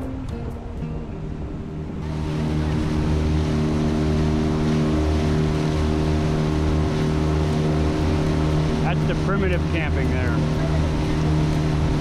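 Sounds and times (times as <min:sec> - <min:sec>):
outboard motor running: 0:00.0 - 0:12.0
water rushing along hull: 0:00.0 - 0:12.0.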